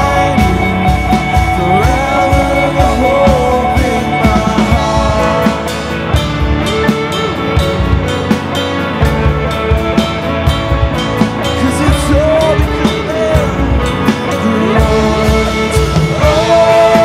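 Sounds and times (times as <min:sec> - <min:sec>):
person singing: 0:00.0 - 0:07.9, 0:11.4 - 0:17.0
rock band playing: 0:00.0 - 0:17.0.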